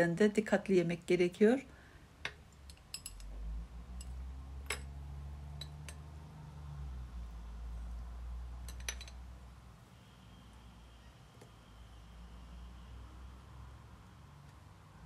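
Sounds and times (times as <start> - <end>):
spoon clinking on glass bowl: 2.7 - 3.3, 8.7 - 9.2.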